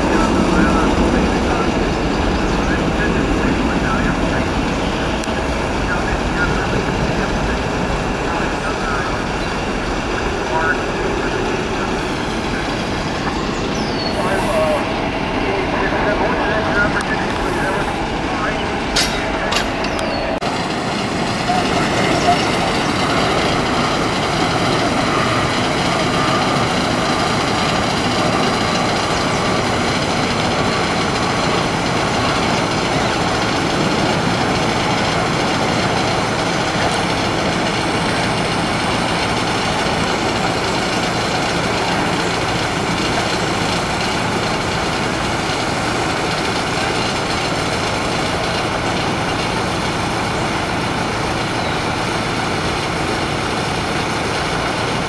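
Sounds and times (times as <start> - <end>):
train rumbling on tracks: 0.0 - 55.0.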